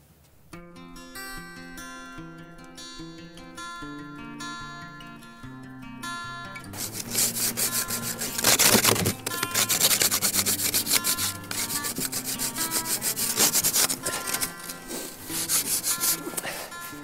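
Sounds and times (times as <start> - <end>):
ice scraper scraping windscreen: 6.8 - 16.8.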